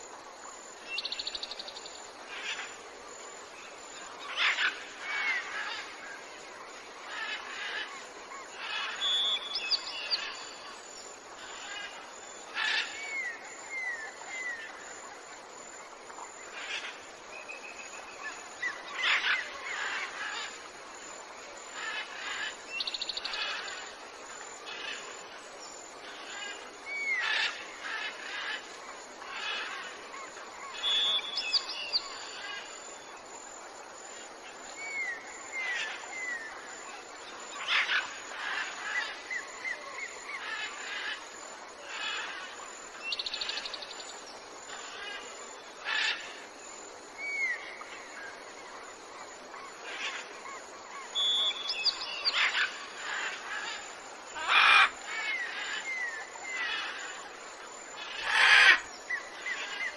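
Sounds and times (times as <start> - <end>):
harsh bird calls: 54.4 - 57.0.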